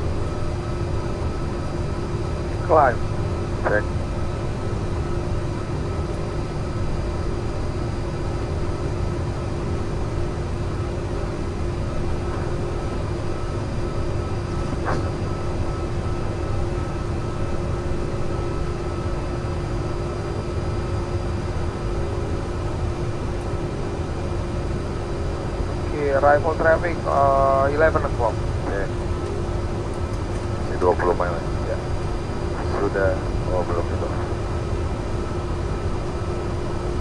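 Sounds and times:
constant hum: 0:00.0 - 0:37.0.

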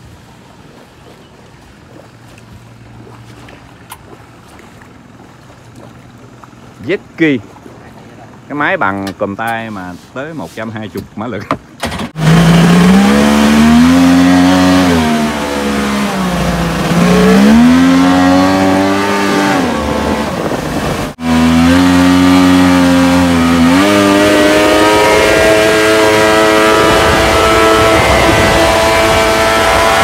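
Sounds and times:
jet-ski engine revving: 0:11.6 - 0:30.0.

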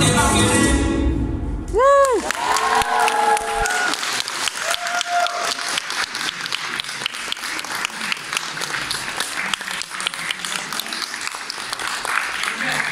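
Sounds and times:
person cheering: 0:01.7 - 0:04.0, 0:04.6 - 0:05.7
audience applauding: 0:01.8 - 0:12.9.

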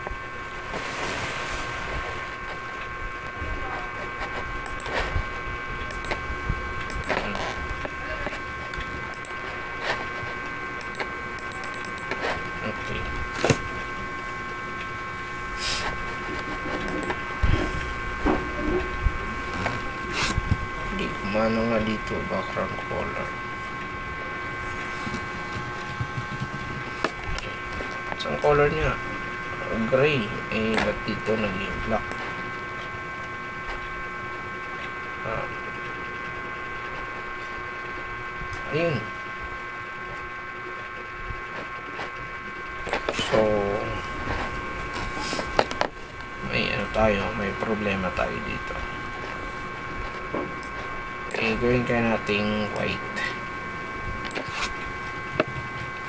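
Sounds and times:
constant high-pitched tones: 0:00.0 - 0:56.0
steady high-pitched hum: 0:00.0 - 0:56.0
computer mouse and key clicks: 0:04.6 - 0:05.0, 0:05.8 - 0:06.2, 0:06.8 - 0:07.4, 0:08.7 - 0:09.4, 0:10.8 - 0:12.2.

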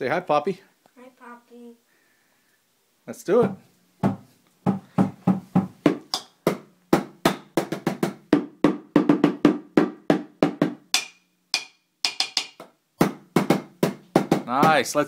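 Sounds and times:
drumming on plastic buckets: 0:03.4 - 0:15.0.

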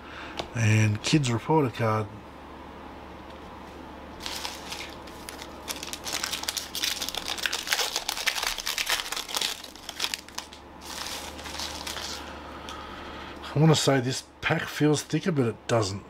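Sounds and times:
foil wrapper tearing and crinkling: 0:04.2 - 0:12.3.

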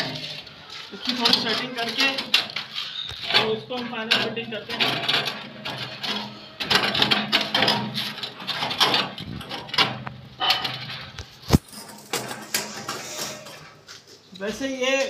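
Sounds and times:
steel drum knocking and scraping: 0:00.0 - 0:14.1.

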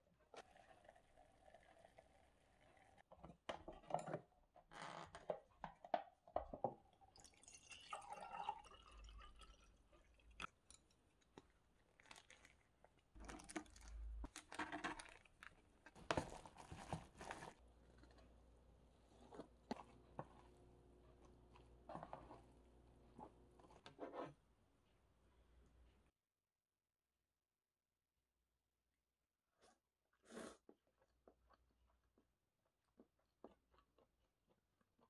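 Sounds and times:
hot water pouring into cup: 0:00.4 - 0:03.0, 0:07.0 - 0:10.6.

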